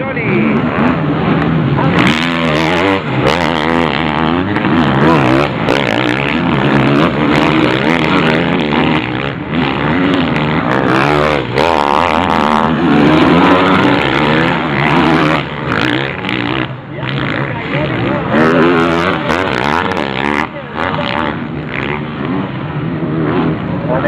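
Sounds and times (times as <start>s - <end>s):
motocross bikes revving: 0.0s - 24.0s.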